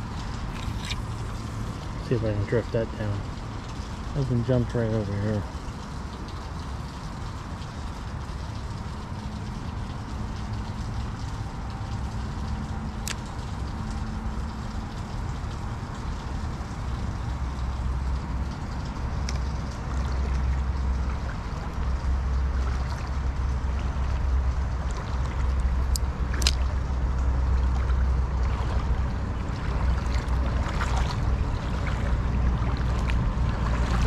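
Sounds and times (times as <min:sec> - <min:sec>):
river water flowing: 0:00.0 - 0:34.0
low rumble: 0:15.5 - 0:34.0.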